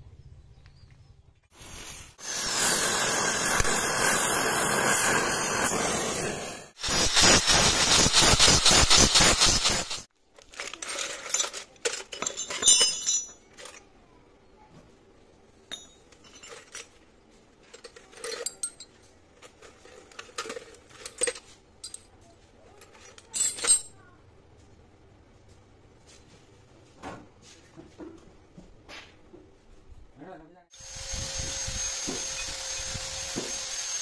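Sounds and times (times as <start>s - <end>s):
drill bits clinking in metal tin: 10.4s - 13.8s
grinding wheel grinding steel: 30.8s - 34.0s.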